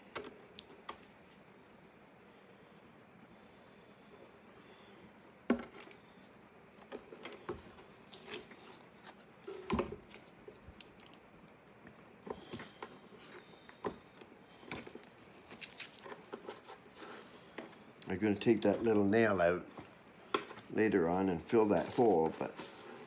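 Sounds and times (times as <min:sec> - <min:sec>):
tape peeling off: 0:15.4 - 0:16.7.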